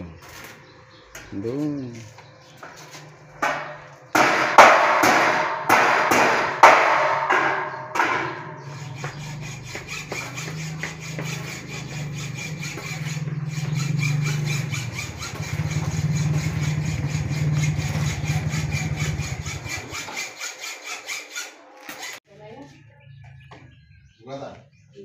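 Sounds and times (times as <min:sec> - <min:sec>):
electric metalworking tool: 0:07.4 - 0:22.2.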